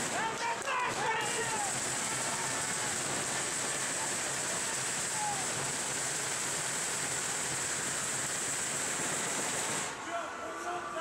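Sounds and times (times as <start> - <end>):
crowd applauding: 0.0 - 6.1.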